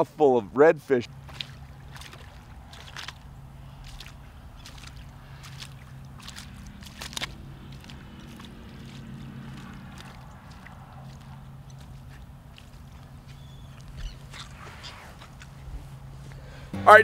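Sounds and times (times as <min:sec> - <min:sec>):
water splashing: 0:00.9 - 0:16.1
low motor hum: 0:01.1 - 0:17.0
alligator jaws snapping: 0:03.9 - 0:12.8.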